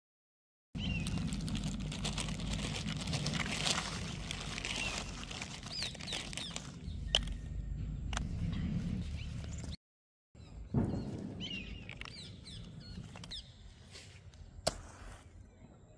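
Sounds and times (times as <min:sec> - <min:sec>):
plastic packet crinkling: 0:00.8 - 0:06.8
bird chirps: 0:10.4 - 0:14.0.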